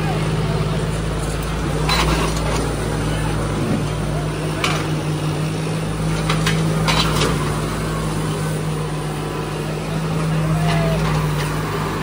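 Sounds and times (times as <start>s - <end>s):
tractor engines droning: 0.0s - 12.0s.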